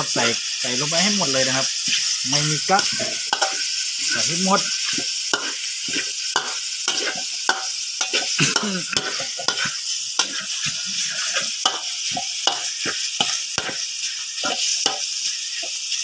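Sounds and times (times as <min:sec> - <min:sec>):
pork sizzling in hot oil: 0:00.0 - 0:16.0
metal spatula scraping a wok: 0:01.7 - 0:15.8.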